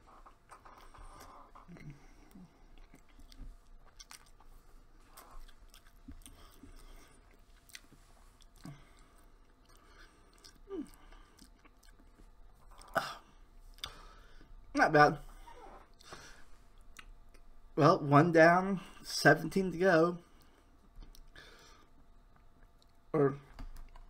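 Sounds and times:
person chewing: 0.4s - 14.4s, 15.9s - 17.5s.

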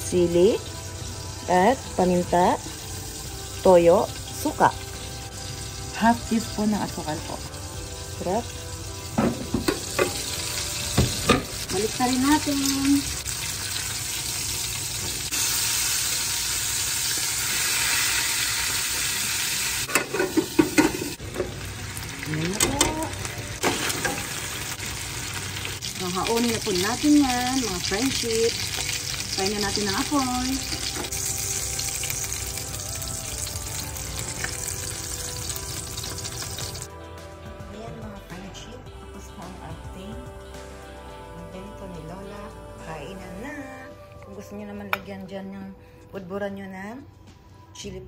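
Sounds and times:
chicken sizzling in a frying pan: 0.0s - 36.9s.

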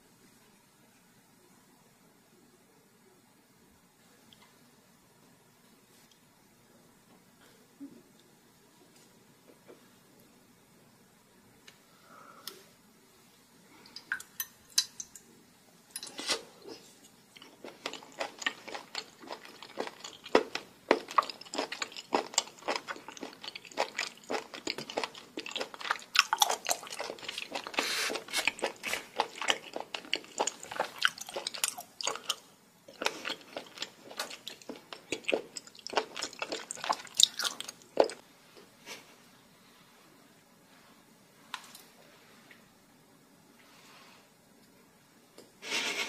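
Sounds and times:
close-miked wet chewing: 17.4s - 38.2s.

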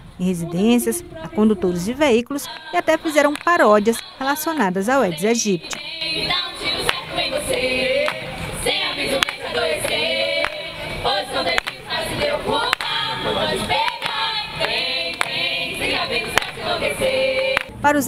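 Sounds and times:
group singing into microphone: 0.2s - 17.8s
hand claps: 2.5s - 3.6s, 5.7s - 5.9s, 6.8s - 8.5s, 9.1s - 10.7s, 11.4s - 13.0s, 13.7s - 15.5s, 16.3s - 16.7s, 17.4s - 17.7s.

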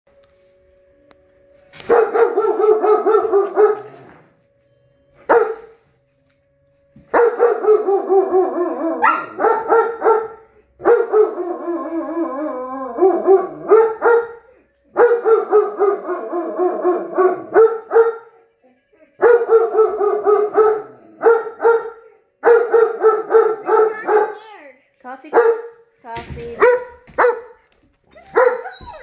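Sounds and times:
dogs howling and yelping: 7.5s - 10.3s, 11.0s - 14.2s, 15.2s - 18.1s, 28.1s - 29.0s.

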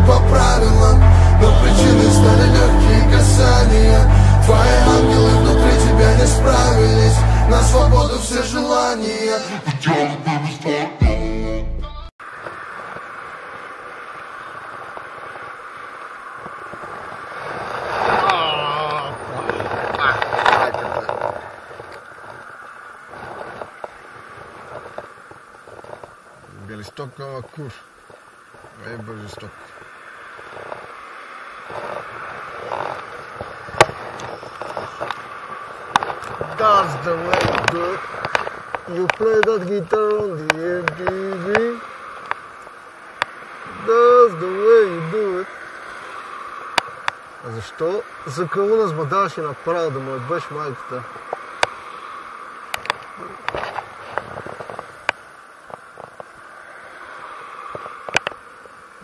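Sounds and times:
steady hum: 0.0s - 9.6s
wind and road noise hiss: 0.0s - 9.7s, 12.2s - 59.0s
fabric rubbing against microphone: 23.1s - 26.5s.

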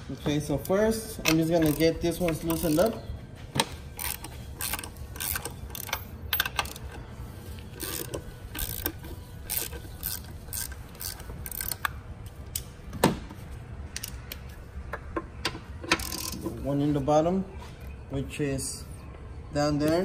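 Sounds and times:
hand ratchet clicking: 1.2s - 3.0s, 4.0s - 7.0s, 7.8s - 12.6s.

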